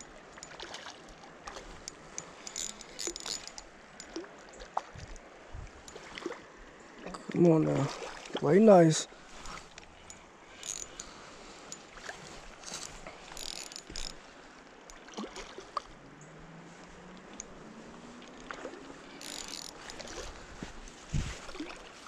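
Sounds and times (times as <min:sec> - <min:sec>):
creek water and wind hiss: 0:00.0 - 0:22.0
fishing reel clicking: 0:01.8 - 0:04.2, 0:09.7 - 0:11.8, 0:12.6 - 0:14.2, 0:19.0 - 0:20.4
rustling dry grass: 0:09.1 - 0:14.6.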